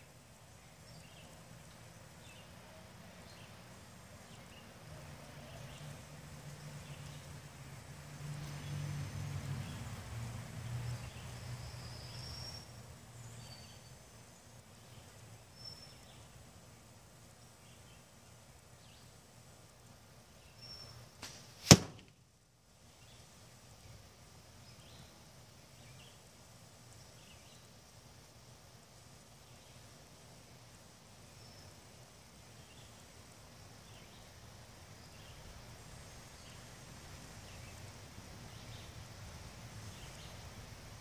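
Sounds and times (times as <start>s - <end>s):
arrow striking target: 21.2s - 22.2s.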